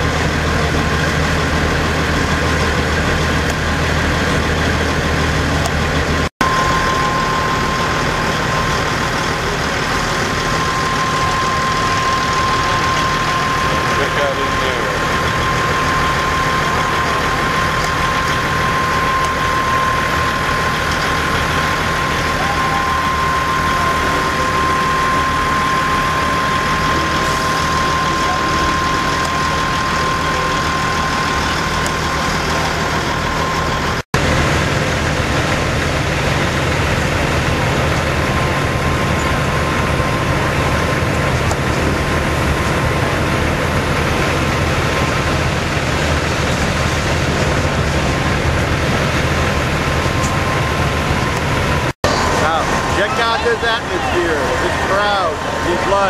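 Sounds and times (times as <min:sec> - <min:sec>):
diesel truck engines idling: 0:00.0 - 0:56.0
steady high whine: 0:00.0 - 0:56.0.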